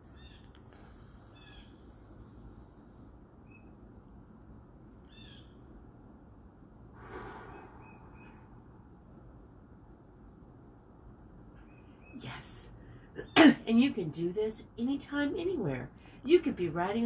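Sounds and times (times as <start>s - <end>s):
slow exhale through the lips: 7.0s - 8.4s.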